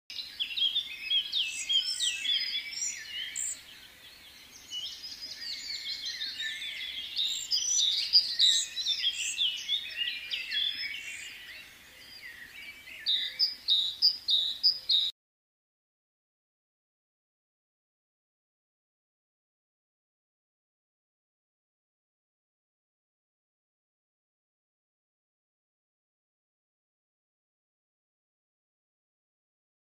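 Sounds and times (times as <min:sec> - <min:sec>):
songbirds chirping and twittering: 0:00.1 - 0:15.2.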